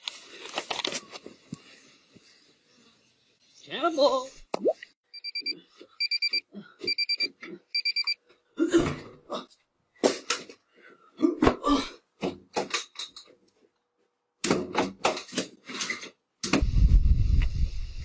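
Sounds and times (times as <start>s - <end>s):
alarm clock beeping: 5.1s - 8.2s.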